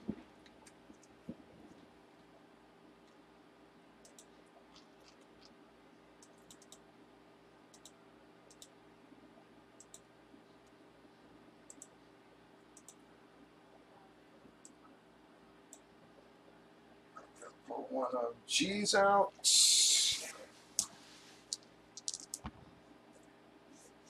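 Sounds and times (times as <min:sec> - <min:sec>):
low steady hum: 0:00.0 - 0:24.0
computer mouse clicks: 0:04.0 - 0:05.5, 0:06.2 - 0:06.8, 0:07.7 - 0:08.8, 0:09.8 - 0:10.8, 0:11.7 - 0:12.0, 0:12.8 - 0:13.0.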